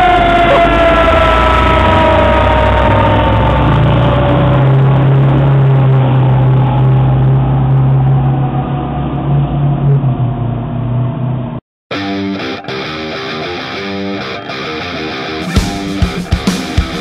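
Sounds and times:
mechanical siren winding down: 0.0 - 11.4
fire engine driving: 0.0 - 11.6
guitar music: 11.9 - 17.0.

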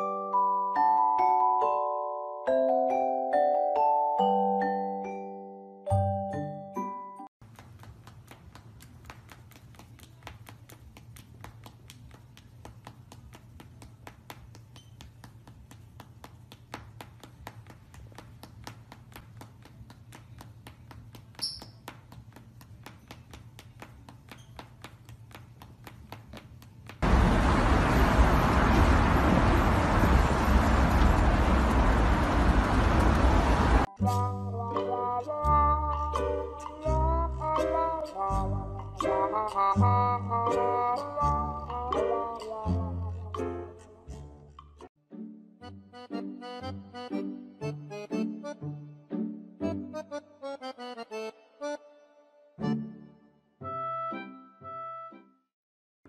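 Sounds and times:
blow dryer blowing: 27.0 - 33.8.

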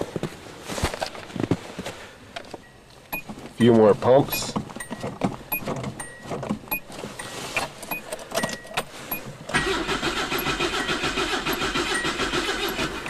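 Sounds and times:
accelerator pedal clicks and knocks: 2.4 - 9.6
starter cranking engine: 9.5 - 13.0.

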